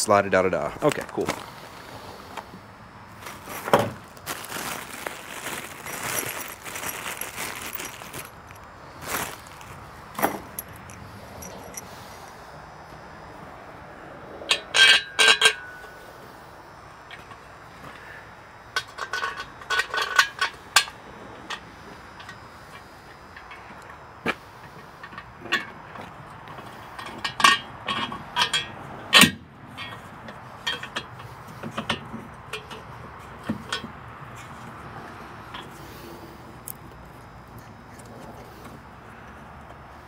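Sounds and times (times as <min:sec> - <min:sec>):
rustling: 0:00.7 - 0:12.3
metallic clinks with ringing: 0:10.4 - 0:12.0.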